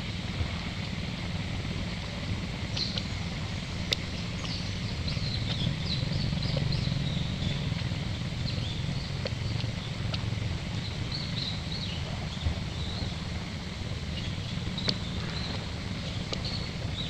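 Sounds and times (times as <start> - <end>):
low rumble: 0.0 - 17.0.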